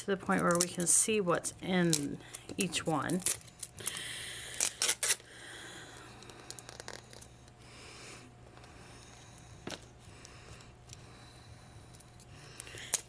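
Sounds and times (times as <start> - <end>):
plastic film crinkling and tearing: 2.7 - 5.3.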